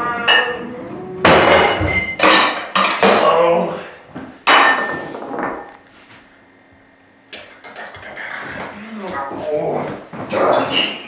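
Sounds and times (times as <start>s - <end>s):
tableware clattering: 0.3s - 3.4s, 4.4s - 5.8s, 10.4s - 11.0s.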